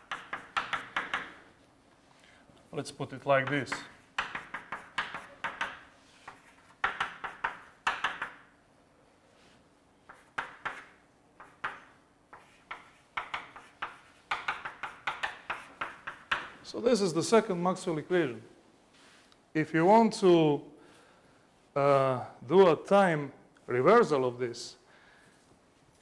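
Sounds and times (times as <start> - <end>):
chalk tapping and scratching: 0.0 - 1.4, 3.4 - 8.4, 10.1 - 16.6.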